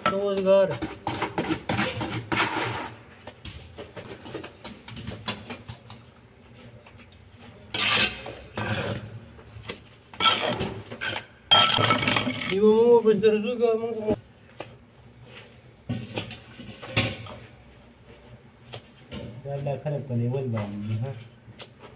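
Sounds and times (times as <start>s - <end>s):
trowels scraping and tapping bricks: 0.0s - 3.3s, 7.0s - 12.6s.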